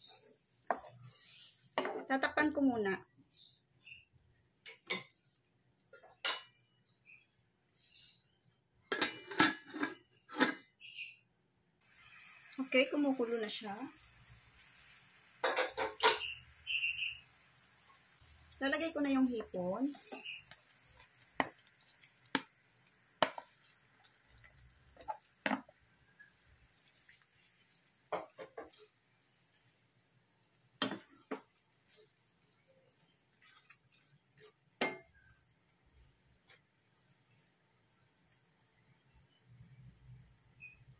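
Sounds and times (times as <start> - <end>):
pot lid clattering on pan: 15.4 - 16.3.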